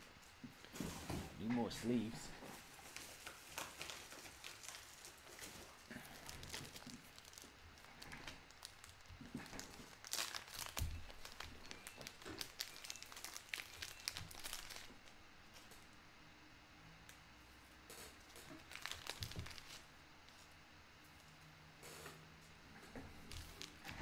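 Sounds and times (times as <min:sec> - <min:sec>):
plastic packaging crinkling: 0:01.9 - 0:15.8, 0:18.3 - 0:20.5, 0:23.1 - 0:24.0.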